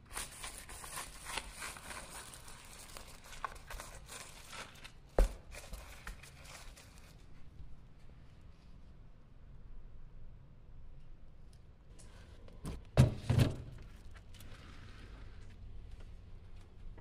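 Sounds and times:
cling film crinkling: 0.0 - 7.4.

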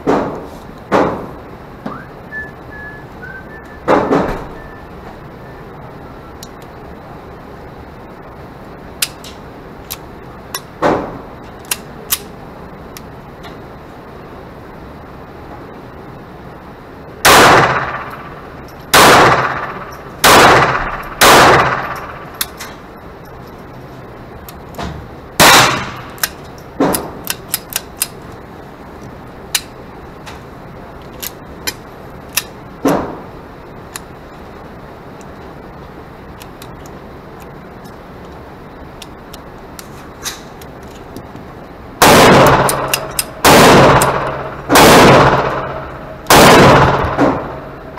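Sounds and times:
pistol shots echoing indoors: 17.2 - 22.7, 25.4 - 28.1, 42.0 - 47.9
fainter distant gunshots: 18.9 - 22.2, 42.0 - 47.6.

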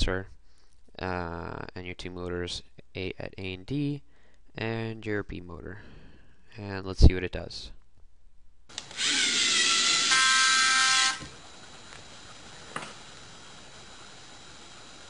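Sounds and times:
faint hum: 0.0 - 15.0
robot motors whirring: 8.8 - 15.0.

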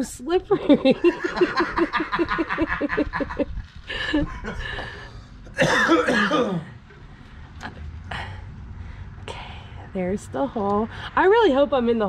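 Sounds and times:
person laughing: 0.6 - 5.0.

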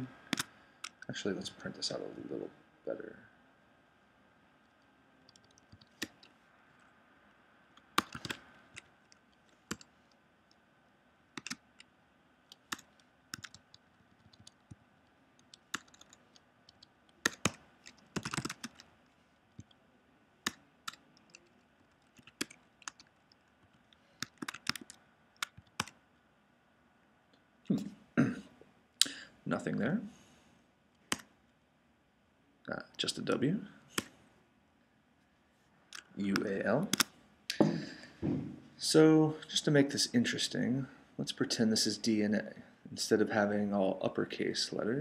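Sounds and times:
typing on computer keyboard: 5.3 - 6.3, 8.0 - 9.9, 11.4 - 11.9, 12.5 - 14.8, 15.4 - 18.9, 20.5 - 26.0.

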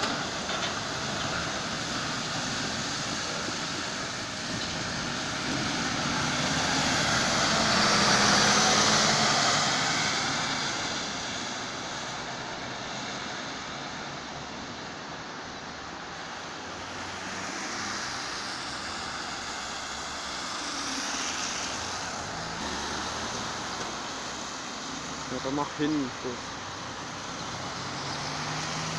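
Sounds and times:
background traffic: 0.0 - 28.9
tyres hissing on wet road: 0.0 - 28.9.

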